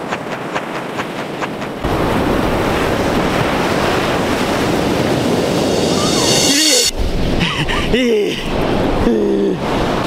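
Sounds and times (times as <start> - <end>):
surf washing up a beach: 0.0 - 7.4, 8.5 - 10.0
wind buffeting microphone: 0.0 - 7.9.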